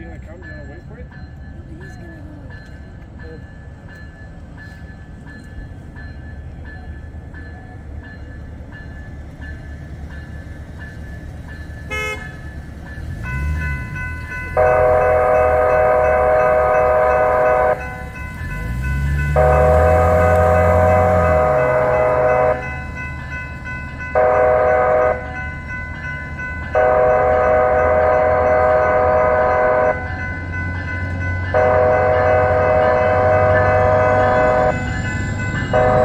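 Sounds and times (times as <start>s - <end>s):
train rumble: 0.0s - 36.0s
locomotive air horn: 11.9s - 12.5s, 14.6s - 17.8s, 19.3s - 22.7s, 24.2s - 25.3s, 26.7s - 30.1s, 31.5s - 34.8s, 35.7s - 36.0s.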